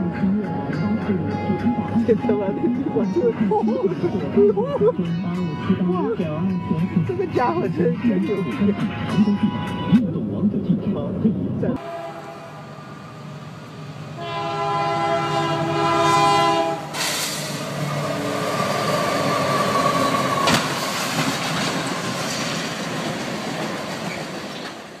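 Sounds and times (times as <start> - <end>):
locomotive air horn: 11.8 - 13.4, 14.1 - 17.6
train striking vehicle bang: 11.8 - 18.0, 18.6 - 25.0
train running over rails: 11.8 - 25.0.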